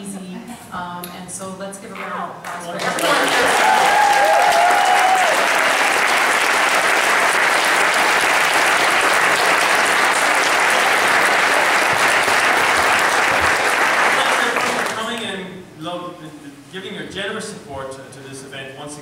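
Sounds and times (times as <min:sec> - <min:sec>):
audience applauding: 0:02.7 - 0:15.2.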